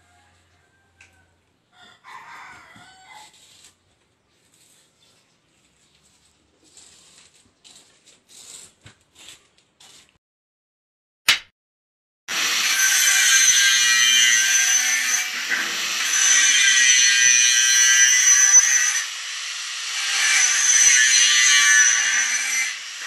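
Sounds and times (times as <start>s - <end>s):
sharp clap: 11.3s - 11.5s
angle grinder cutting steel: 12.3s - 23.0s.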